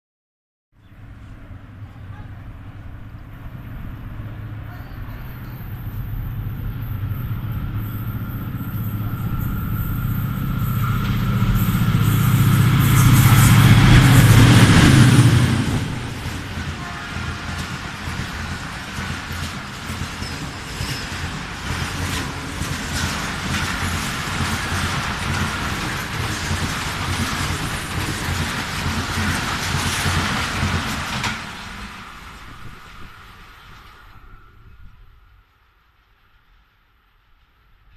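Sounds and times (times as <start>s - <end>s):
rush of air and rail noise: 0.8s - 37.9s
locomotive engine drone: 1.0s - 29.6s
train wheels clattering: 5.1s - 34.0s
faint high whine: 32.4s - 36.6s.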